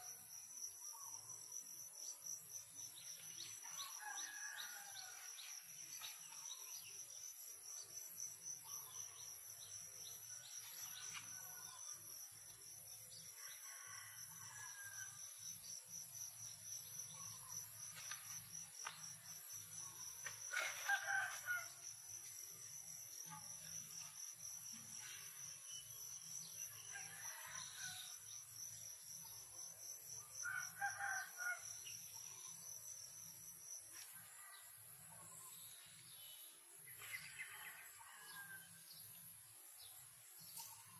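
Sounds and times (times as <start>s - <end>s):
insects trilling: 0.0s - 33.8s
rooster crowing: 20.6s - 21.8s.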